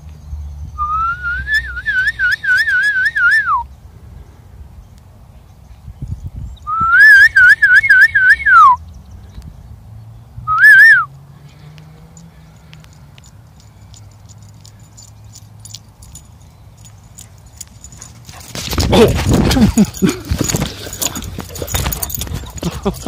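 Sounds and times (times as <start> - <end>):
person whistling for a dog: 0.8 - 3.6, 6.7 - 8.8, 10.5 - 11.1.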